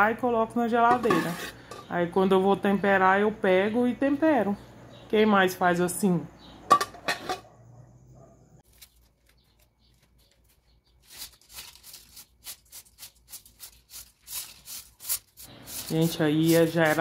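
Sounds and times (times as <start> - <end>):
broom sweeping floor: 13.2 - 17.0.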